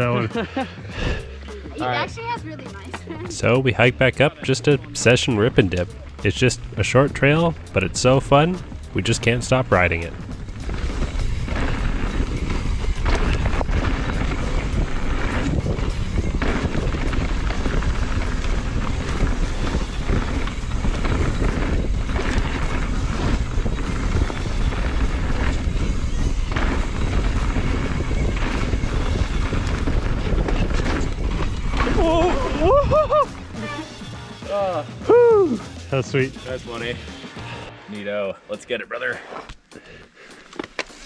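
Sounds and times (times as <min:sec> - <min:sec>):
bike tyre noise: 0:02.8 - 0:37.7, 0:39.2 - 0:41.0
wind on microphone: 0:08.5 - 0:33.2
bike knocks and thuds: 0:10.1 - 0:33.1.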